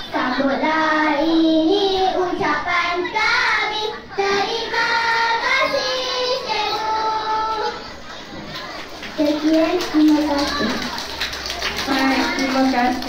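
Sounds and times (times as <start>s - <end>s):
children singing in unison: 0.0s - 8.2s.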